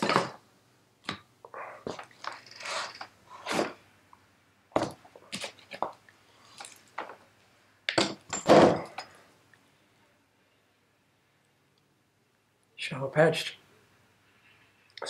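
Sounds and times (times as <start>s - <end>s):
wheel thumping down: 8.0s - 9.0s.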